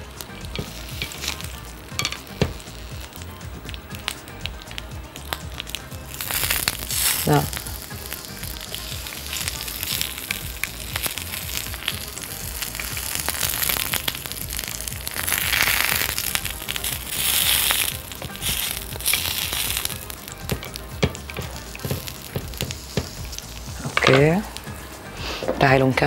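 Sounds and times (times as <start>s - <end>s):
eggplant sizzling on grill pan: 0.0s - 25.4s
metal tongs clicking on pan: 0.6s - 4.6s.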